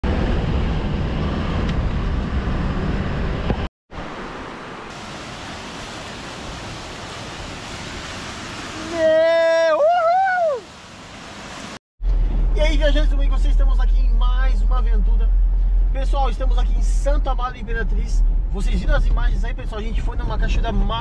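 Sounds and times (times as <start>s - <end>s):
waterfall rushing water: 4.0s - 11.8s.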